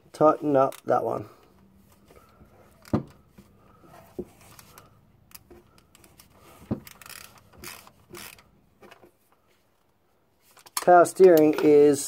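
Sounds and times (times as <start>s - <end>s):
ratchet pawl clicking: 6.8s - 8.5s.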